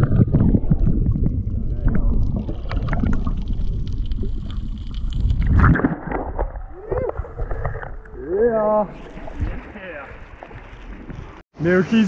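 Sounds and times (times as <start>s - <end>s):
underwater clicks and crackles: 0.0s - 8.2s
underwater rumble of moving water: 0.0s - 11.4s.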